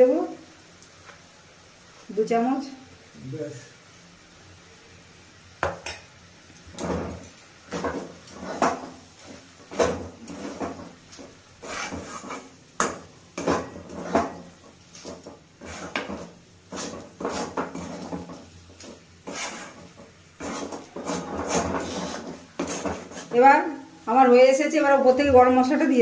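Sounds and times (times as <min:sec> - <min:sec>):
metal spatula scraping a pan: 0:06.7 - 0:23.6.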